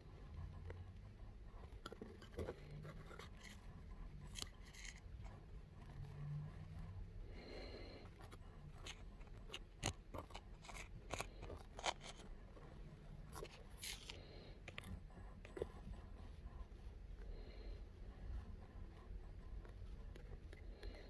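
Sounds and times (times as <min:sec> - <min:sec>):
handling clicks and scrapes: 0:01.6 - 0:06.9, 0:08.0 - 0:15.9.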